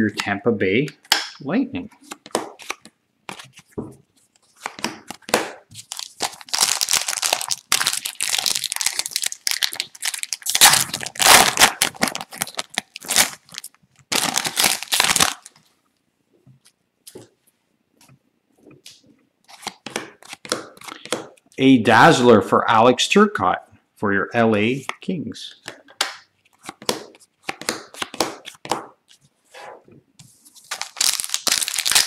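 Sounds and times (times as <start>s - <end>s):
foil wrapper tearing and crinkling: 5.8s - 15.5s, 30.7s - 32.0s.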